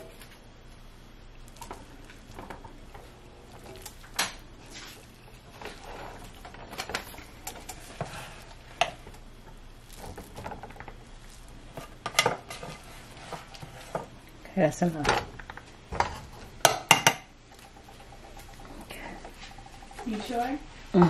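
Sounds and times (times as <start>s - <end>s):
spatula scraping skillet: 1.4s - 14.2s.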